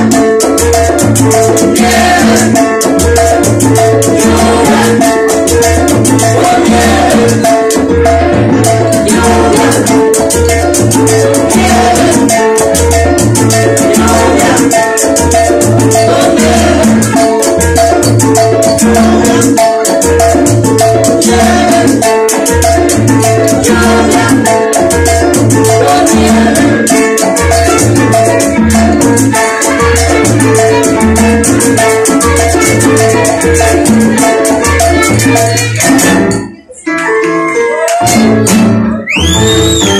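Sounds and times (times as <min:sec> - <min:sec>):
high percussion ticking: 0:00.0 - 0:37.2
congas: 0:00.0 - 0:39.9
salsa band playing: 0:00.0 - 0:39.9
people singing: 0:01.2 - 0:38.5
flute: 0:36.5 - 0:39.9.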